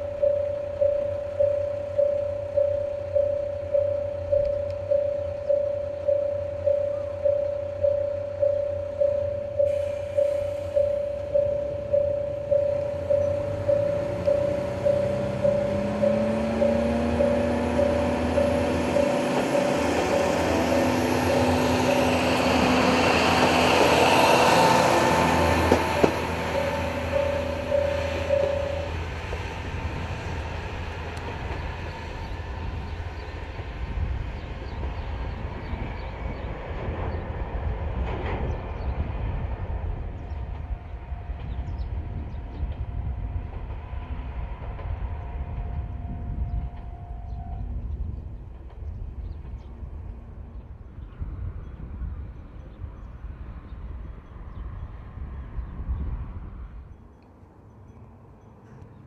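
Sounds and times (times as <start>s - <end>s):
pulsing warning bell: 0.0s - 30.0s, 45.2s - 47.8s
diesel railcar engine running: 0.0s - 59.0s.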